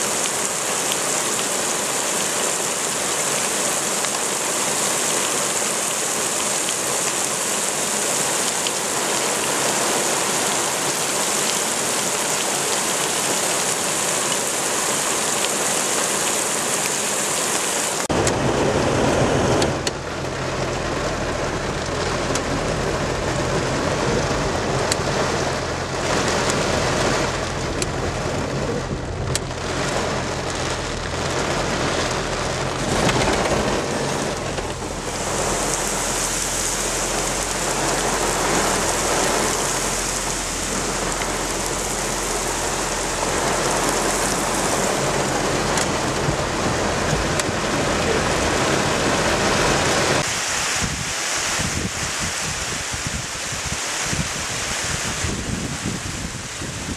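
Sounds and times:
heavy rain pouring: 0:00.0 - 0:56.9
gusting wind: 0:17.3 - 0:56.9.

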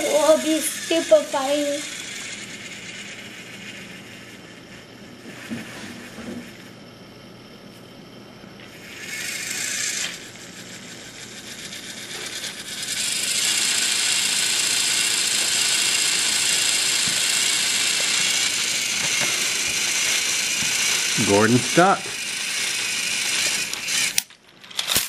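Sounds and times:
toy train motor whirring: 0:00.0 - 0:06.7, 0:08.6 - 0:25.0.

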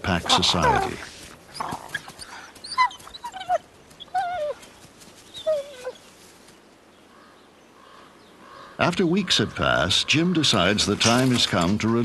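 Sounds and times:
wolf whimpering: 0:00.2 - 0:04.7, 0:05.4 - 0:06.0.

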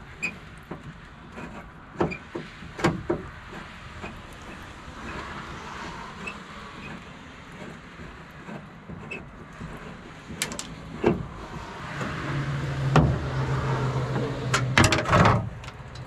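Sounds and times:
metal clanks: 0:14.1 - 0:16.0.

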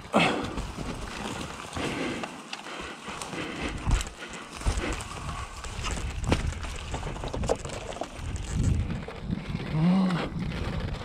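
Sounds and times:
bike rattles and knocks: 0:00.0 - 0:11.0
wind on microphone: 0:04.6 - 0:11.0.

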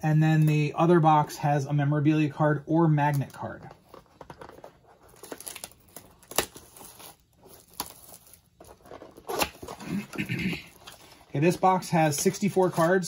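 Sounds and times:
plastic wrapping crinkling and tearing: 0:03.8 - 0:10.1.

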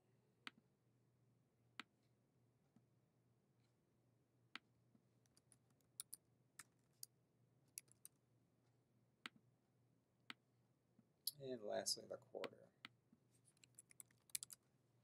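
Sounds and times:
keyboard typing: 0:05.3 - 0:06.2, 0:07.8 - 0:08.1, 0:13.6 - 0:14.6.

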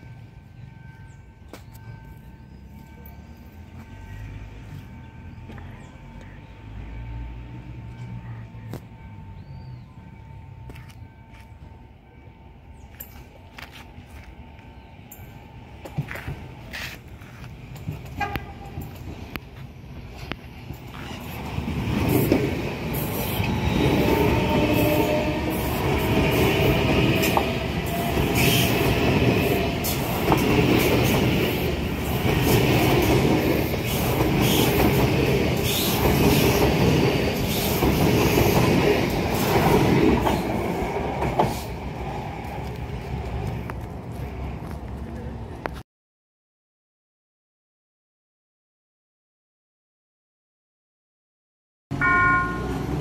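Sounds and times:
train wheels rumbling and clacking: 0:12.8 - 0:45.8
wheels squealing on rails: 0:20.0 - 0:42.8.

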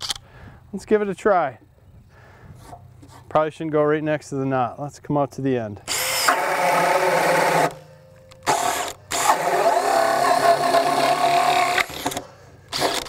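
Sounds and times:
drill motor whining: 0:05.9 - 0:13.0.

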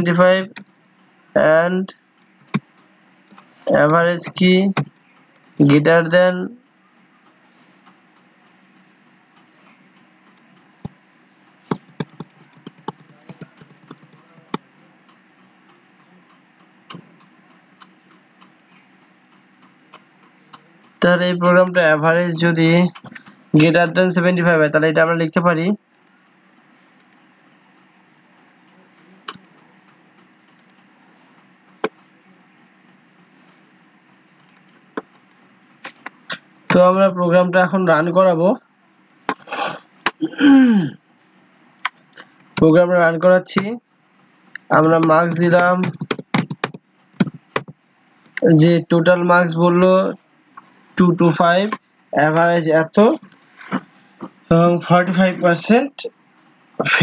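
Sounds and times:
faint background hum: 0:00.0 - 0:57.0
computer mouse clicks: 0:11.7 - 0:14.6, 0:27.0 - 0:27.2, 0:29.3 - 0:29.5, 0:30.5 - 0:30.9, 0:34.4 - 0:36.4
keyboard keys clicking: 0:11.7 - 0:14.6, 0:44.9 - 0:47.7.

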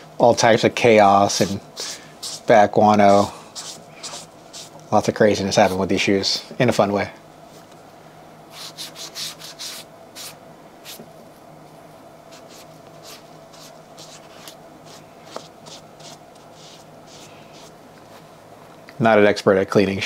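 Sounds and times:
scrubber scratching a shoe: 0:01.3 - 0:04.8, 0:05.5 - 0:05.9, 0:08.5 - 0:11.0, 0:12.3 - 0:17.8.

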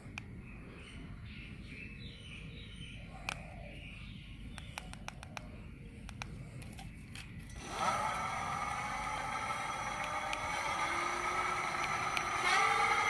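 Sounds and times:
electric hub motor whine: 0:07.4 - 0:13.0.

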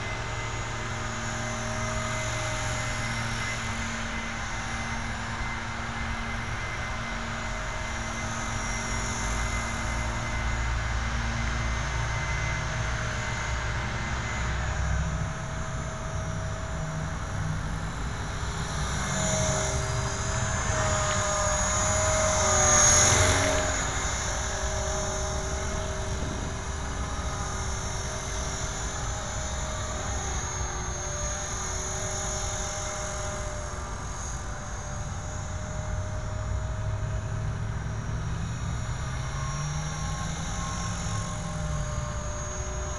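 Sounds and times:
model helicopter motor whine: 0:00.0 - 0:42.9.

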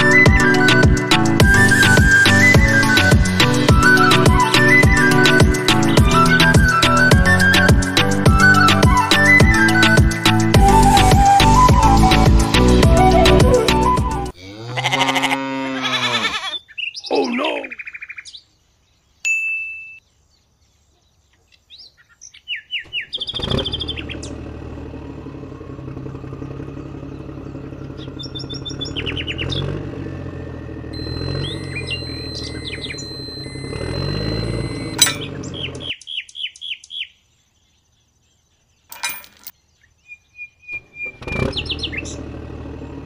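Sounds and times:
tractor engine running: 0:00.0 - 0:14.3, 0:22.9 - 0:35.9, 0:40.8 - 0:43.0
music: 0:00.0 - 0:14.4
birds chirping: 0:00.0 - 0:43.0
animal calls: 0:14.4 - 0:17.9.

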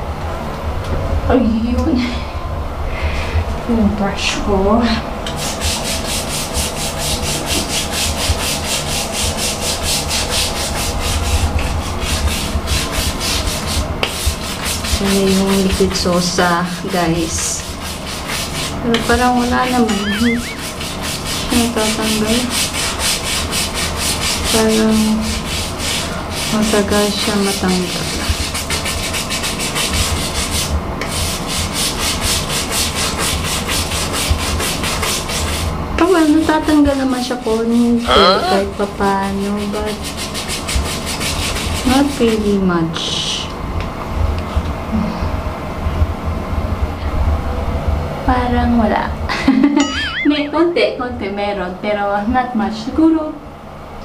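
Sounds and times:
brush scrubbing tiled floor: 0:04.5 - 0:43.5.

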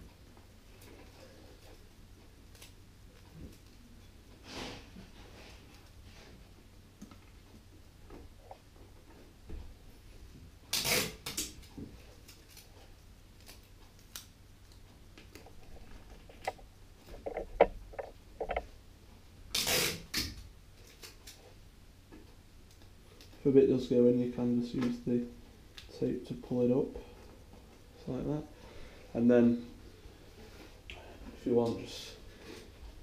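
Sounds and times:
tape ripping off roll: 0:10.7 - 0:12.7, 0:19.5 - 0:21.4
squeaks of card and tape: 0:19.6 - 0:20.3.

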